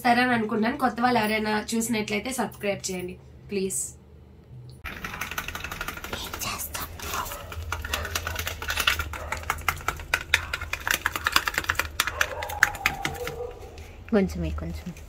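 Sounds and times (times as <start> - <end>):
spoon scraping plastic cup: 6.1 - 13.4.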